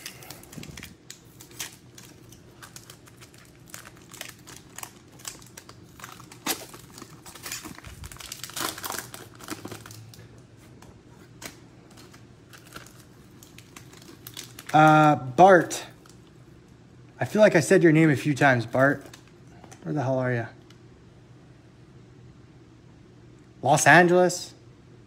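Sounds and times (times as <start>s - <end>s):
foil pack crinkling: 0.0s - 16.3s.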